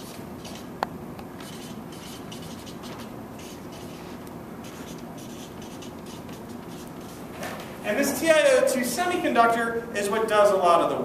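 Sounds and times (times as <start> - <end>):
marker pen scratching on paper: 0.0 - 0.7, 1.4 - 7.6.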